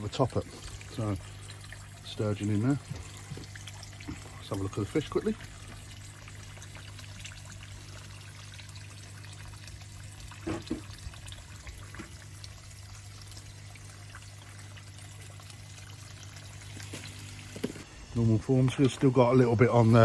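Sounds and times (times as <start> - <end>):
water trickling into pond: 0.0 - 20.0.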